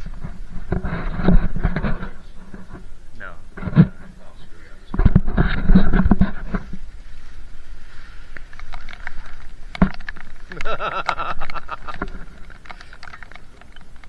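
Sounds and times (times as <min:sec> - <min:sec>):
plastic poncho rustling: 0:03.9 - 0:14.0
footsteps on wet path: 0:06.1 - 0:14.0
rain pattering: 0:07.8 - 0:14.0.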